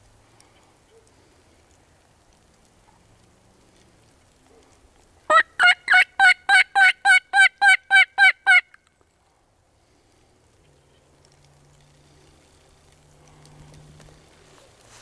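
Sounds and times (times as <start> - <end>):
turkey call yelps: 5.3 - 8.8.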